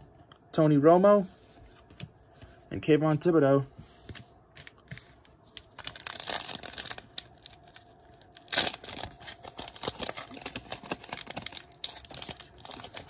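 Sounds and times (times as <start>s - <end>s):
plastic wrapper crinkling: 4.6s - 13.0s.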